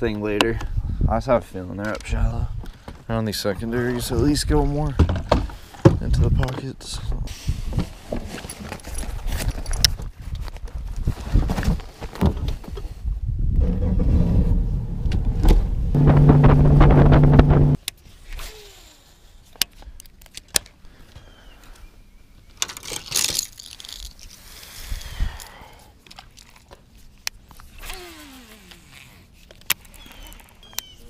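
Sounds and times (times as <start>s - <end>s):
outboard motor running: 16.0s - 17.8s
clicks and knocks of fishing gear: 19.6s - 20.8s, 22.5s - 24.4s, 28.7s - 30.9s.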